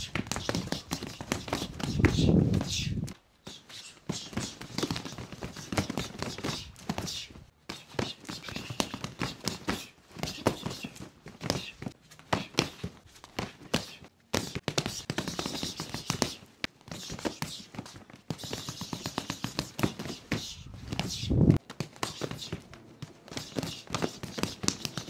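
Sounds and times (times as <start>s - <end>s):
hands striking padded dummy: 4.1s - 7.1s, 7.7s - 25.0s.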